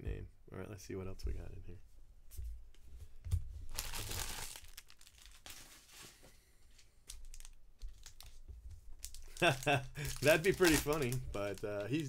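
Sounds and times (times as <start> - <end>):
wrapper crinkling and tearing: 3.7 - 6.2, 7.1 - 8.4, 9.0 - 12.0
cards being handled: 5.0 - 12.0.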